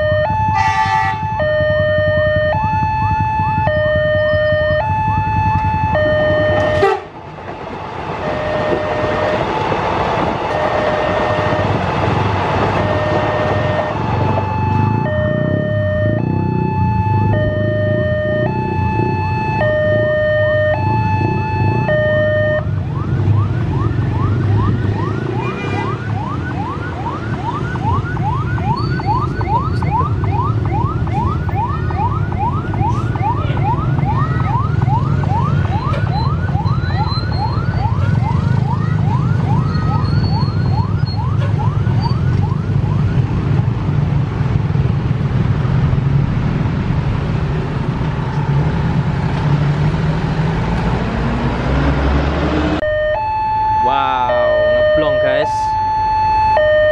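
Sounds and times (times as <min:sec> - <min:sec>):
level-crossing warning alarm: 0:00.0 - 0:07.0, 0:08.2 - 0:09.6, 0:10.5 - 0:43.3, 0:52.8 - 0:56.9
ambulance siren yelping: 0:00.0 - 0:07.1, 0:08.2 - 0:09.6, 0:10.2 - 0:43.7, 0:52.8 - 0:56.9
idling traffic engines rumbling: 0:00.0 - 0:56.9.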